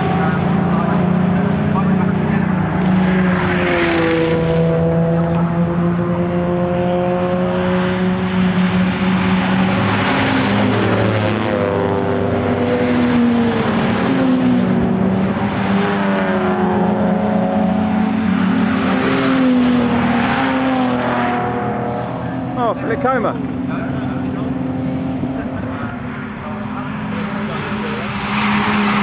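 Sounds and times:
racing cars passing at speed: 0.0 - 29.0.

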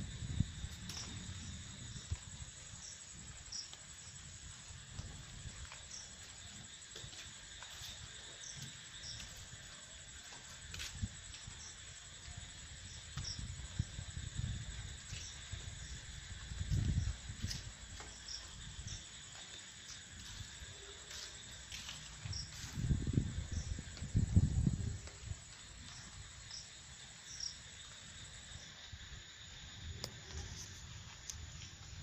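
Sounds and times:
insect chirp: 0.0 - 32.0
insect trilling: 25.9 - 32.0.

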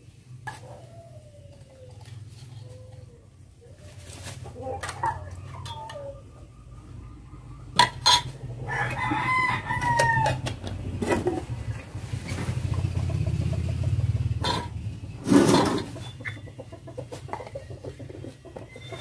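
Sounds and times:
rooster crowing: 8.6 - 10.6.

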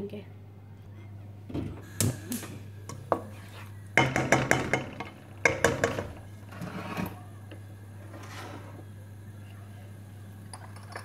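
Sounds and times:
wooden spatula scraping a metal pan: 3.2 - 3.8, 5.8 - 7.2, 8.0 - 8.8.

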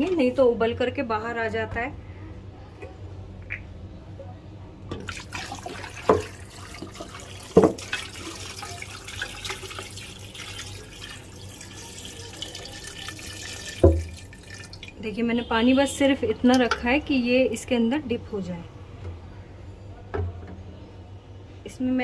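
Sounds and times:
water splashing over meat: 5.0 - 15.0.

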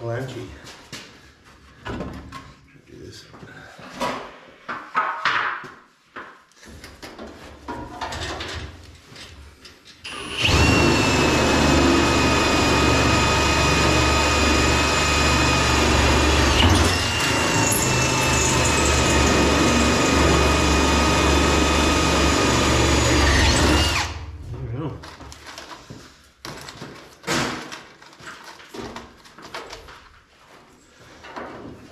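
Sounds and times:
electric power drill running: 10.1 - 24.3.

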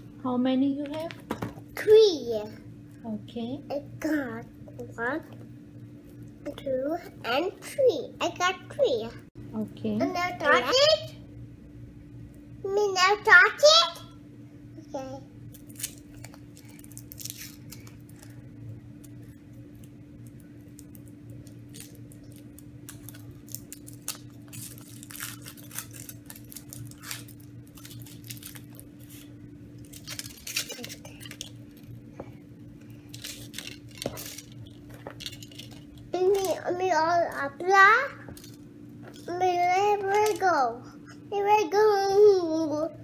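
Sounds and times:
foil wrapper crinkling and tearing: 15.5 - 32.0, 32.8 - 36.6.

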